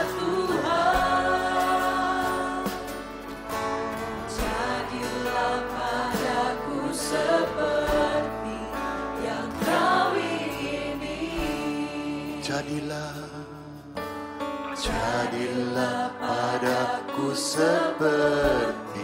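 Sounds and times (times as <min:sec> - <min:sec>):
people singing together: 0:00.0 - 0:14.0, 0:14.7 - 0:19.0
band accompaniment: 0:00.0 - 0:19.0.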